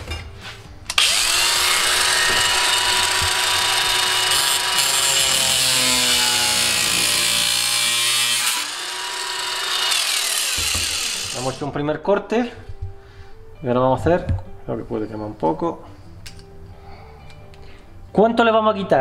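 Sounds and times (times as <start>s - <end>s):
angle grinder cutting metal: 0.9s - 11.7s.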